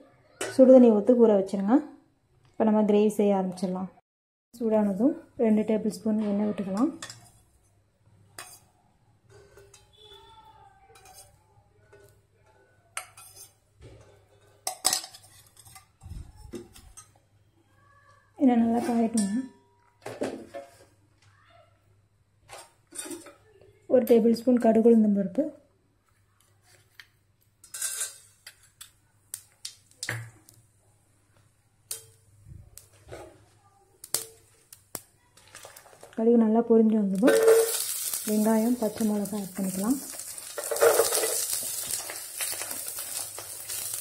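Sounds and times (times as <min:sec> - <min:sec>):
kitchenware clinking on metal pot: 0:06.6 - 0:07.4, 0:09.3 - 0:10.2, 0:10.9 - 0:12.2, 0:12.9 - 0:17.2, 0:22.5 - 0:23.4, 0:27.6 - 0:29.0, 0:37.2 - 0:44.0
oil sizzling: 0:27.6 - 0:36.2, 0:37.1 - 0:44.0
mustard seeds popping: 0:37.2 - 0:44.0.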